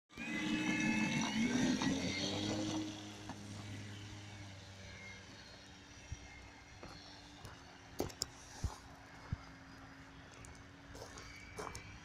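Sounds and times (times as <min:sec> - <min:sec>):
model airplane motor whine: 0:00.1 - 0:12.0.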